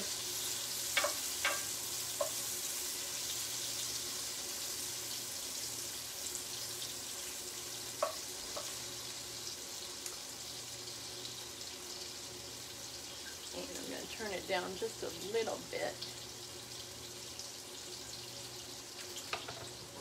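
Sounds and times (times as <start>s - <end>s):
mushrooms sizzling in oil: 0.0s - 20.0s
wooden spoon knocking pan: 8.0s - 8.7s, 19.3s - 19.7s.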